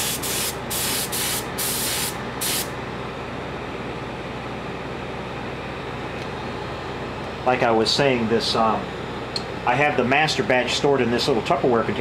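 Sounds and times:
heat gun running: 0.0 - 2.7
paint spray gun hissing: 0.0 - 2.7.

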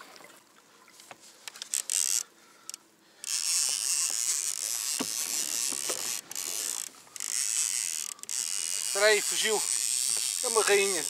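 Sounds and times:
fishing reel buzzing: 1.5 - 11.0
rod and reel knocks: 3.3 - 11.0.

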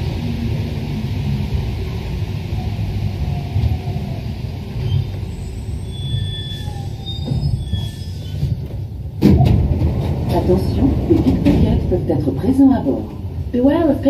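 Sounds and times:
train rumbling as it brakes: 0.0 - 14.0
high brake squeals: 4.8 - 8.6.

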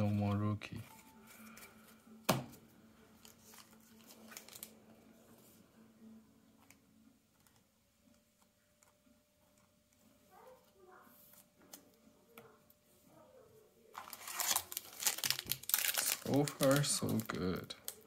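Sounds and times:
cards clicking and rustling: 3.2 - 4.8, 14.0 - 18.0.

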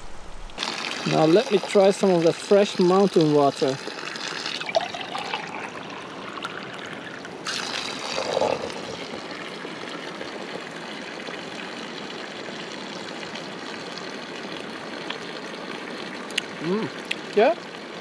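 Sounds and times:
water trickling from a pipe: 0.5 - 18.0
water splashing into a cup: 0.6 - 9.4.

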